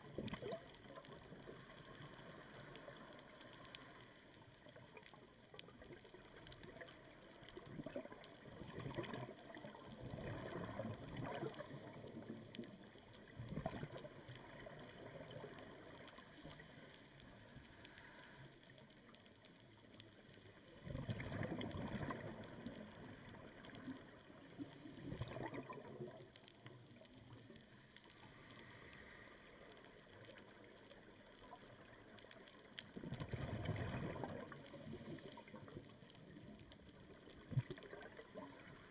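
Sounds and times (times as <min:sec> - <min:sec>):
exhaled bubbles gurgling underwater: 0:00.0 - 0:03.9, 0:04.6 - 0:17.0, 0:20.3 - 0:38.9
faint high hiss: 0:00.0 - 0:06.0, 0:13.7 - 0:20.1, 0:26.0 - 0:32.7.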